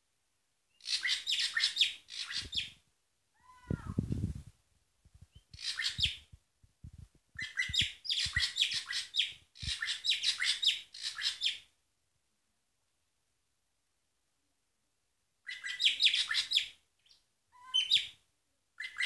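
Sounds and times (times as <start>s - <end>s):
bird chirping: 0.7s - 2.8s, 5.3s - 6.3s, 7.4s - 11.7s, 15.4s - 18.2s, 18.8s - 19.0s.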